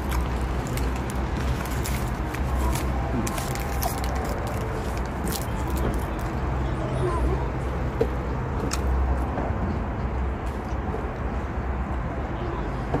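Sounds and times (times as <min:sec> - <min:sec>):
paper wrapper crinkling: 0:00.0 - 0:06.4
faint distant voices: 0:02.3 - 0:13.0.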